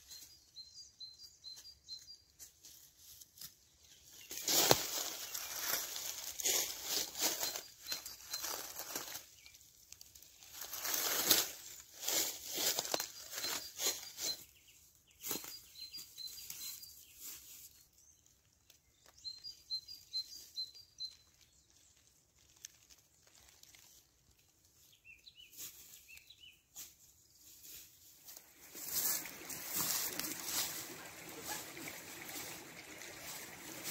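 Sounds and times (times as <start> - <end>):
small bird chirping: 0.0 - 2.3, 5.2 - 9.7, 12.1 - 22.0
dry leaves rustling and crackling: 2.5 - 14.5, 21.1 - 33.9.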